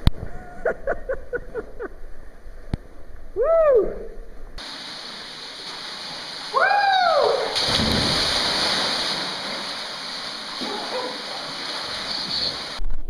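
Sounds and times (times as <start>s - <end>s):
person whooping: 3.4s - 4.1s, 6.5s - 7.6s
waterfall rushing water: 4.6s - 12.8s
body splashing into water: 5.6s - 12.8s.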